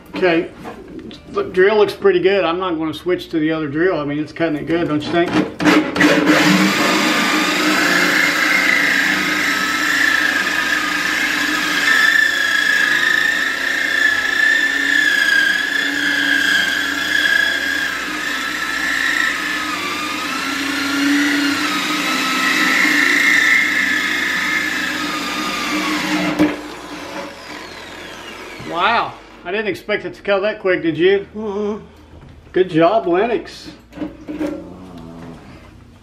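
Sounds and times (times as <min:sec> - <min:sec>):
electric drill grinding whine: 0:05.8 - 0:29.4.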